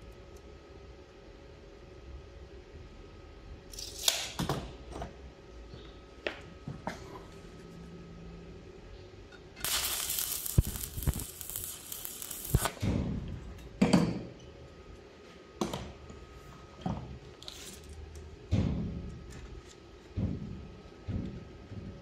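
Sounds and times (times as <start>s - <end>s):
welding arc crackling and hissing: 9.6s - 12.8s.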